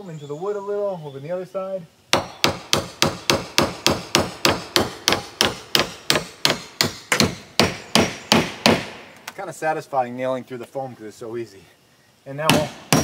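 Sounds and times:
hammer driving a nail: 2.1 - 9.0, 12.5 - 13.0.

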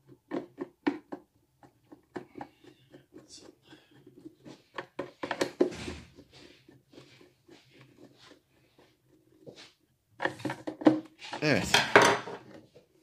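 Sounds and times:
plastic clicks and scrapes: 0.0 - 8.9.

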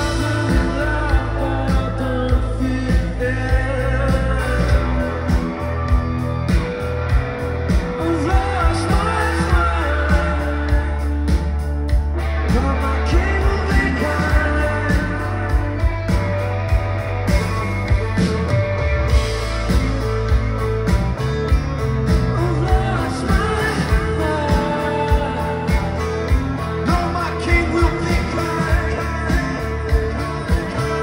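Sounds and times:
man singing: 0.0 - 6.0, 7.7 - 16.2, 22.0 - 31.0
rock band playing: 0.0 - 31.0.

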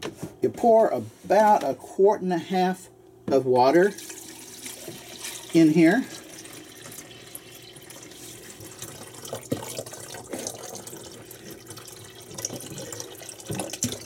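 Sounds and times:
water pouring into reservoir: 3.9 - 14.0.

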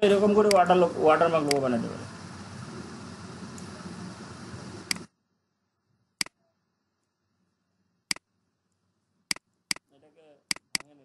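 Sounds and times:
background hiss: 0.0 - 11.0
computer mouse clicks: 0.4 - 0.6, 1.5 - 1.7, 4.9 - 5.1, 10.5 - 11.0.

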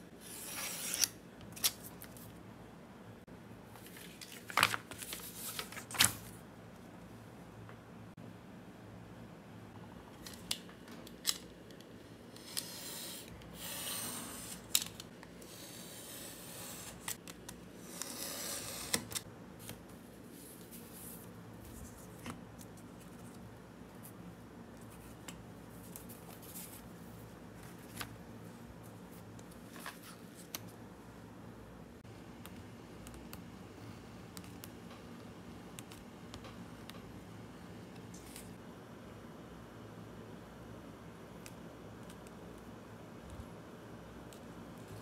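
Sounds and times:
paper rustling: 3.8 - 6.4.

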